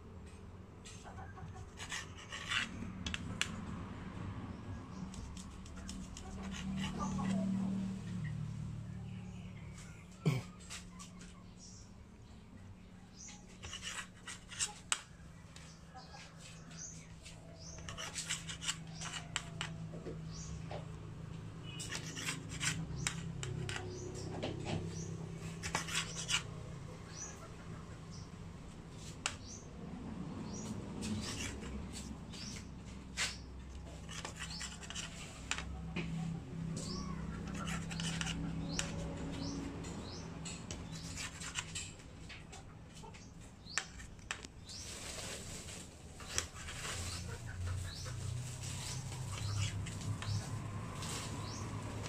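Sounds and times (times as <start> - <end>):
knife cutting bread on plate: 1.6 - 3.6, 13.6 - 15.1, 17.6 - 20.0, 21.7 - 24.3, 25.0 - 26.5, 34.0 - 35.7, 36.8 - 40.2, 40.8 - 42.0.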